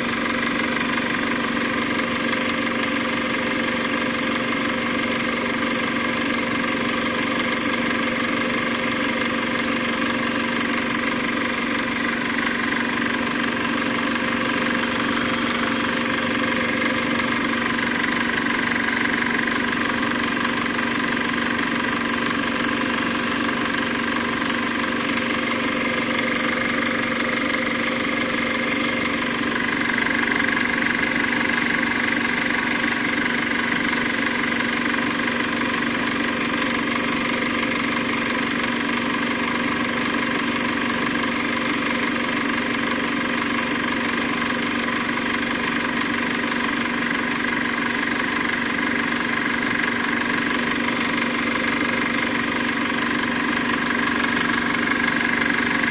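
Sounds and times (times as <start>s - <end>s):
mechanical motor hum: 5.9s - 40.9s.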